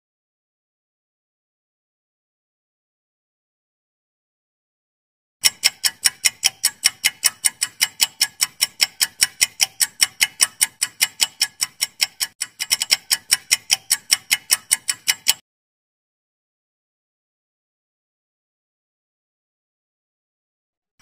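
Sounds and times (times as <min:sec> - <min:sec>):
fast clock ticking: 0:05.4 - 0:15.4.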